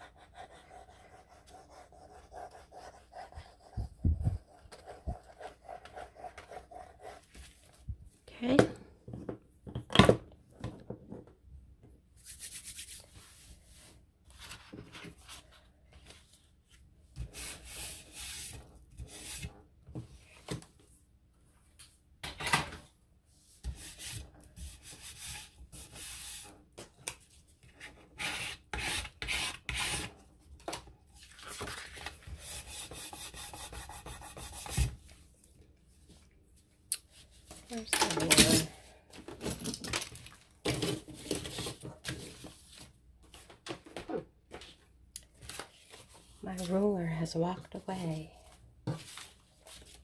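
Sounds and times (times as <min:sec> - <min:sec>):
paper rustling and scraping: 0:12.5 - 0:18.6, 0:31.2 - 0:32.7, 0:48.9 - 0:50.0.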